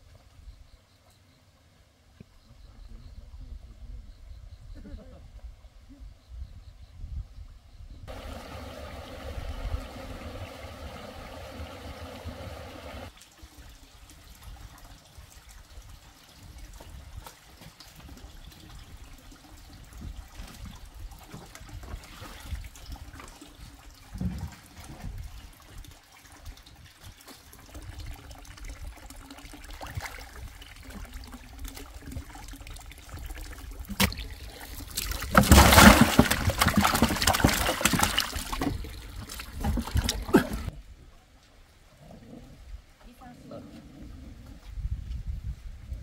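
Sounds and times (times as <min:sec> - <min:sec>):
rush of splashing water: 0:08.1 - 0:40.8
water trickling into fish tank: 0:13.1 - 0:40.6.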